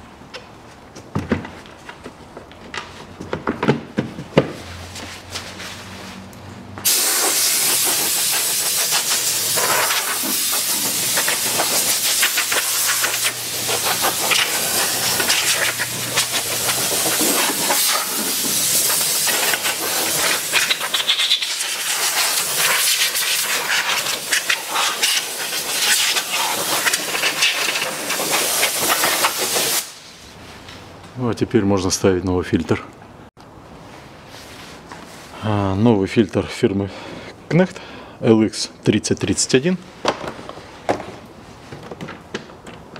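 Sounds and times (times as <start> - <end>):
compressed air hissing: 6.8 - 30.2.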